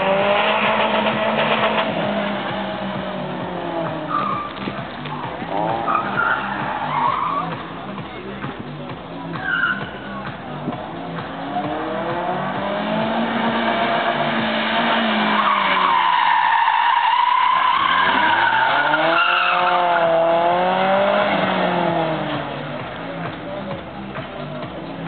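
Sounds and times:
car engine revving: 0.0 - 25.0
tyres squealing: 0.4 - 8.0, 9.2 - 23.9.

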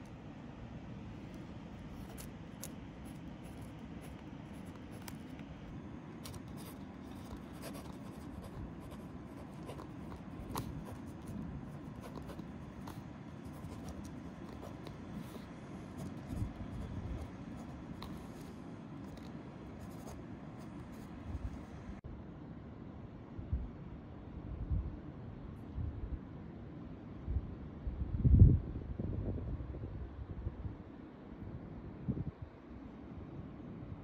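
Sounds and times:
pen scratching on paper: 1.9 - 5.5, 6.2 - 21.2.

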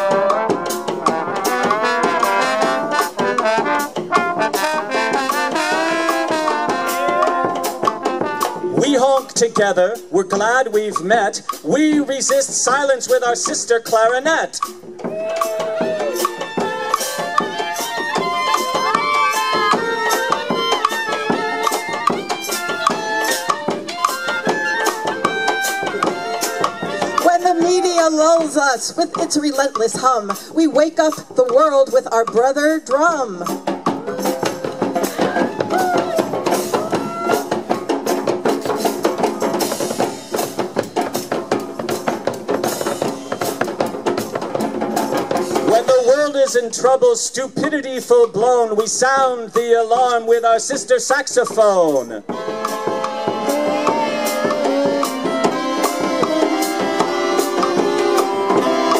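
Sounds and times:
clarinets playing in harmony: 0.0 - 8.8, 15.0 - 28.2, 33.9 - 38.0, 52.3 - 58.9
percussion beats: 0.0 - 58.9.

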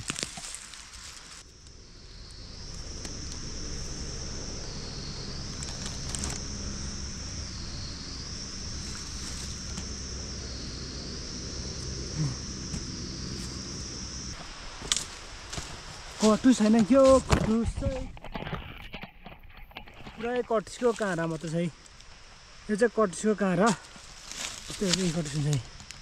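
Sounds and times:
high-pitched insect drone: 0.0 - 26.0
wind rumble: 0.9 - 19.6.

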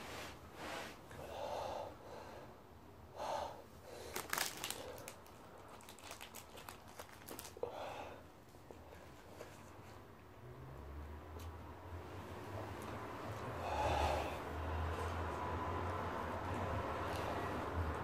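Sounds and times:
man breathing hard and gasping: 1.2 - 5.2, 13.5 - 14.9
plastic wrapper crinkling: 4.0 - 7.6.

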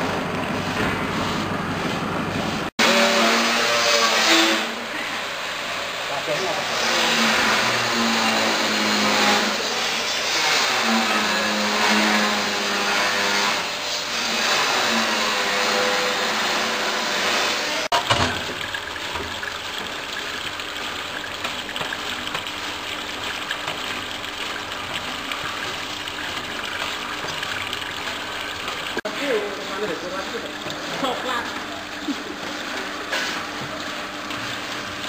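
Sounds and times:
water splashing onto drain grate: 17.8 - 35.0
peeling machine drum churning: 17.9 - 35.0.

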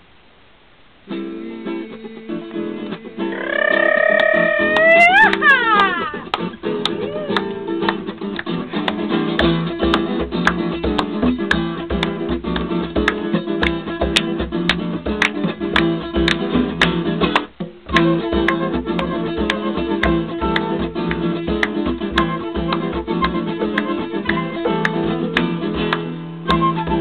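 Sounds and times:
acoustic guitar strumming: 1.0 - 27.0
person singing: 1.2 - 7.7
flute playing: 3.3 - 7.5, 17.9 - 21.0, 22.1 - 25.6, 26.4 - 27.0.

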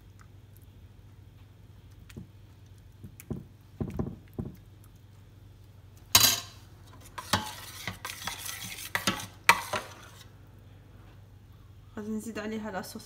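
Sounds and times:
kitchen utensils clattering: 6.2 - 6.6
metal ladle scraping ceramic dish: 6.2 - 10.3.

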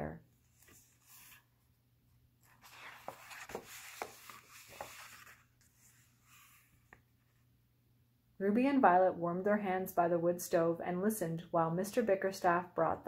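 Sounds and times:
paper pages rustling: 0.5 - 1.5, 2.4 - 7.1.

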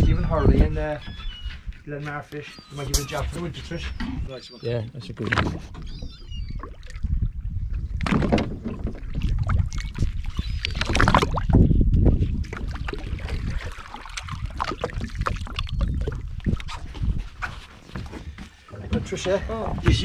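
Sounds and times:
low wind rumble on microphone: 0.0 - 2.0, 5.6 - 20.0
sea water splashing against boat: 5.1 - 11.6, 12.2 - 20.0.

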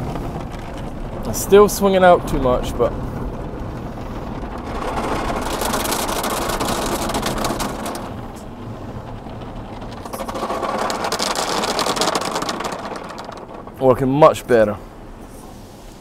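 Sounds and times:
car wash brushes scrubbing: 3.2 - 13.8.

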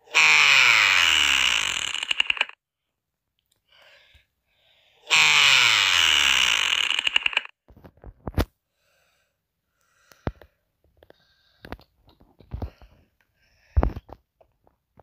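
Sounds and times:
stutter of clicks: 1.3 - 2.6, 6.2 - 7.5.

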